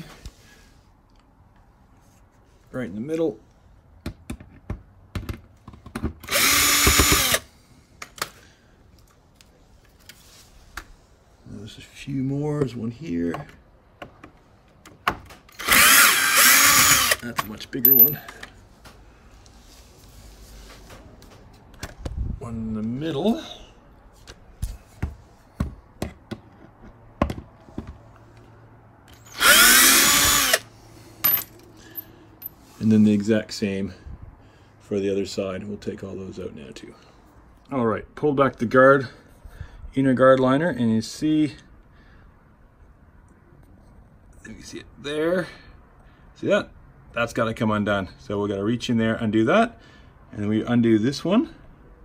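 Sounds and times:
drill bit clicks and taps: 6.3s - 7.4s
drill motor whine: 6.3s - 7.5s, 15.6s - 17.2s, 29.2s - 30.7s.

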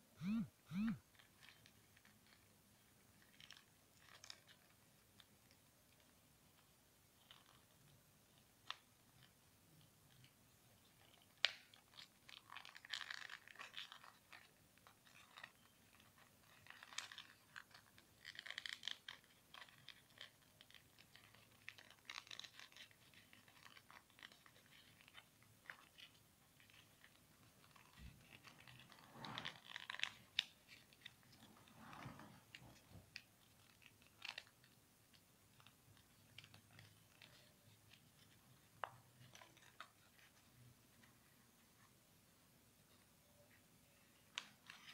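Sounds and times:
paper crinkling and rustling: 1.2s - 42.0s, 42.8s - 44.9s
soft paper ticks: 32.5s - 42.0s.

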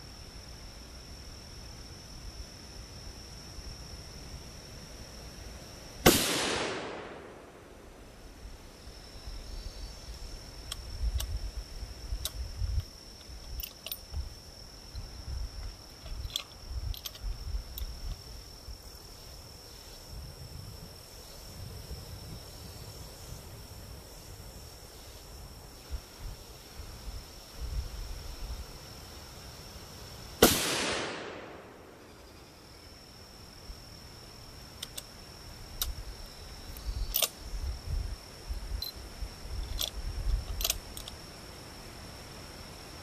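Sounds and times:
high insect drone: 0.0s - 43.0s
rifle shot: 6.0s - 7.7s, 30.4s - 32.1s
wind rumbling on microphone: 8.0s - 28.9s, 35.6s - 41.2s
rifle bolt metallic clicks: 16.0s - 17.9s, 34.8s - 35.1s, 37.1s - 37.4s, 39.6s - 41.2s.

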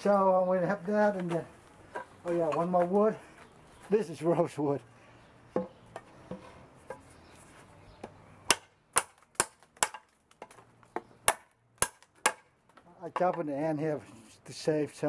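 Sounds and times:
blade chopping into wood: 8.5s - 10.6s, 11.2s - 12.4s.

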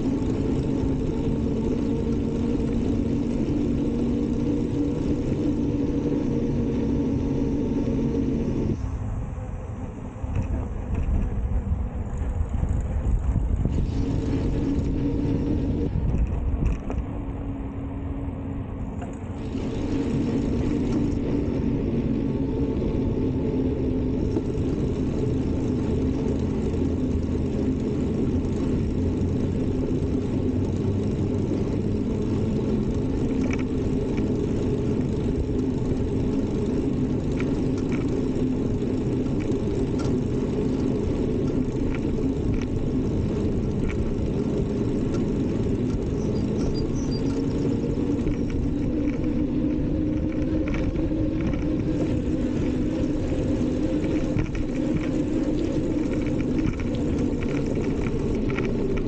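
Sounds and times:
bicycle tyres rolling on pavement: 0.0s - 59.0s
wind buffeting microphone: 0.0s - 59.0s
faint ticks: 33.3s - 34.3s, 37.2s - 38.2s, 39.1s - 59.0s.

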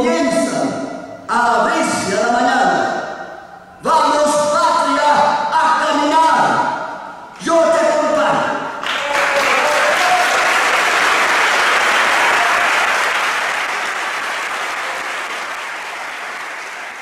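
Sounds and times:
audience applauding: 8.8s - 17.0s.

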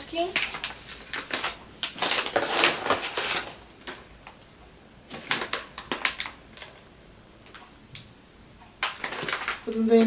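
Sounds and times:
packaging crinkling: 0.2s - 4.4s, 5.1s - 6.9s, 8.8s - 10.0s.

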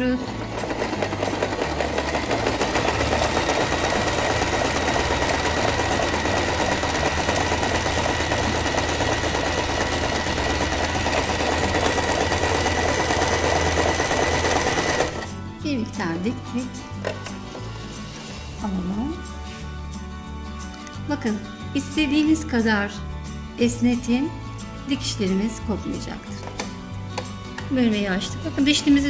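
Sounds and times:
sewing machine running: 0.0s - 15.4s.

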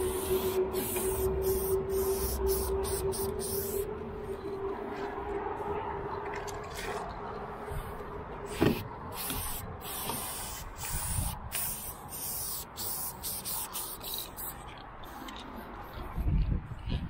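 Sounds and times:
spray can hissing: 0.0s - 3.9s, 8.7s - 14.6s.

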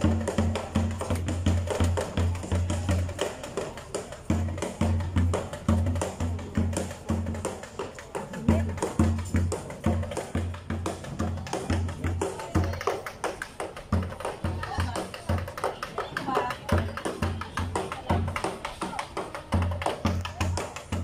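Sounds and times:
low drumbeat: 0.0s - 15.7s.

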